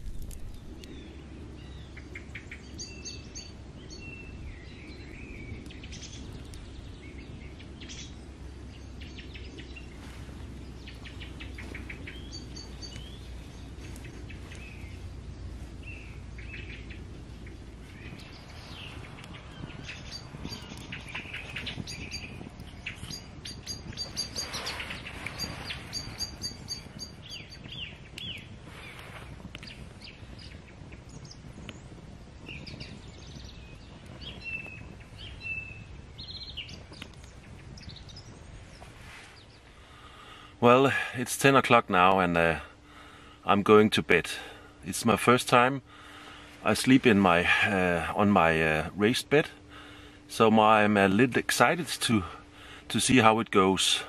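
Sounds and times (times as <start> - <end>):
low steady rumble: 0.0 - 54.0
birds chirping and singing: 0.4 - 41.0.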